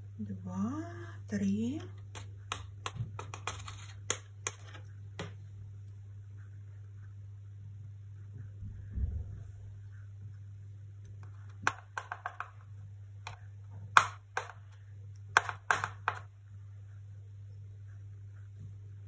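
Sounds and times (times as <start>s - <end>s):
low hum: 4.8s - 15.4s.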